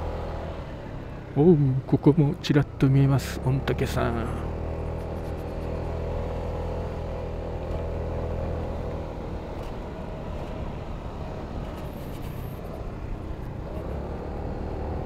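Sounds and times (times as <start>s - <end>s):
wind and road noise: 0.0s - 15.0s
scooter engine running: 4.4s - 6.0s.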